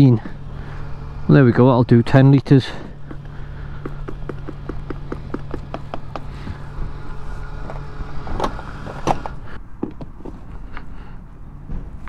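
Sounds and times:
petrol pump humming: 0.0 - 11.2
pump rapid clicking: 2.8 - 6.8.

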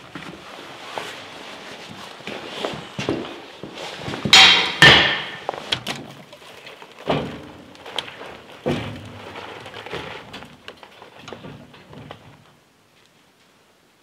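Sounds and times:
dull thuds: 7.0 - 12.6.

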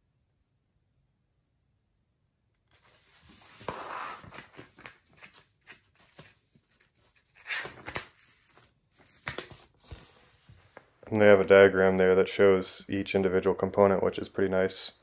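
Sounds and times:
paper pages rustling: 2.7 - 11.0.

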